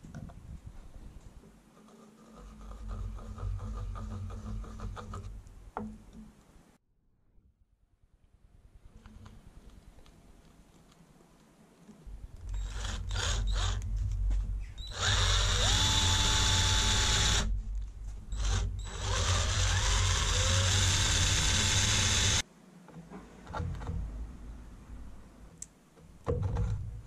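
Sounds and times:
power drill boring into wood: 0:12.6 - 0:13.8, 0:14.9 - 0:17.5, 0:18.4 - 0:22.4.

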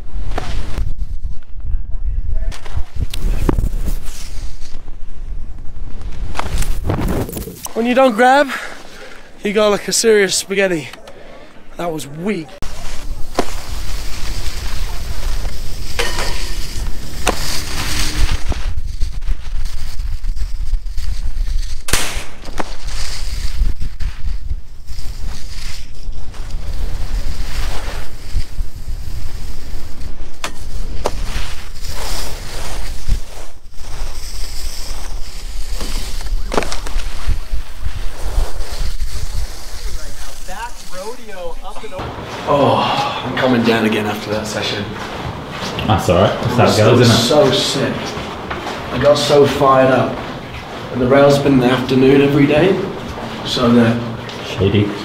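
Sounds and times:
wind buffeting microphone: 0:00.0 - 0:07.7, 0:12.7 - 0:31.8
skis scraping on snow: 0:02.6 - 0:10.9, 0:11.7 - 0:55.0.

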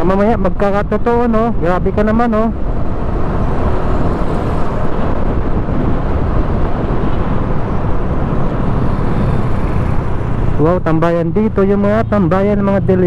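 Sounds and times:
wind rush: 0:00.0 - 0:10.9
motorcycle engine: 0:02.6 - 0:11.2.

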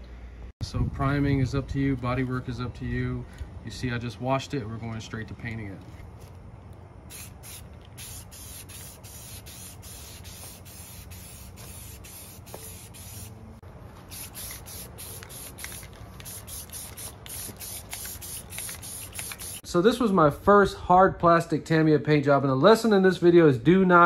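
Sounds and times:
spray paint can hissing: 0:07.1 - 0:13.4, 0:14.1 - 0:19.6.

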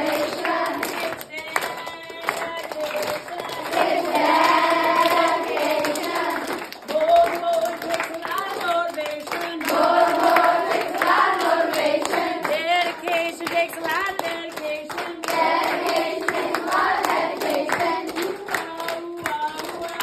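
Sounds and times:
children singing: 0:00.0 - 0:01.2, 0:03.2 - 0:06.7, 0:09.6 - 0:12.6, 0:15.2 - 0:19.0
hands clapping: 0:00.0 - 0:20.0.

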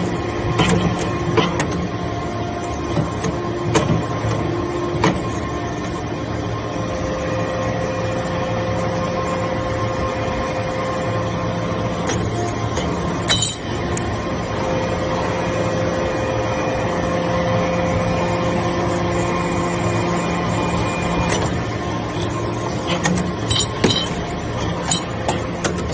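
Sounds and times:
hydraulic press humming: 0:00.0 - 0:25.9
sharp metallic clank: 0:13.3 - 0:13.7, 0:23.4 - 0:24.2.

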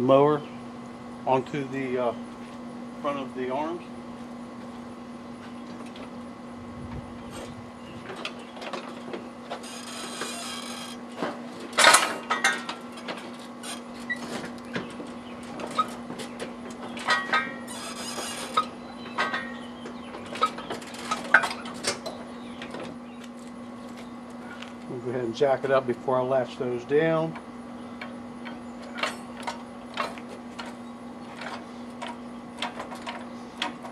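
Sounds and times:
steady low hum: 0:00.0 - 0:33.9
metal knocks and clanks: 0:08.0 - 0:22.9.

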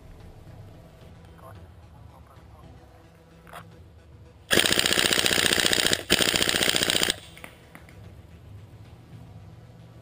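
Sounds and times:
airsoft gun firing full auto: 0:04.5 - 0:07.5.

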